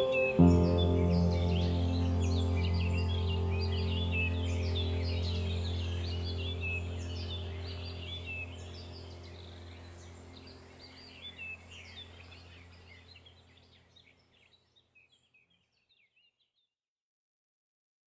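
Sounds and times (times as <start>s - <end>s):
steady low hum: 0.0s - 13.4s
small birds chirping: 0.0s - 16.7s.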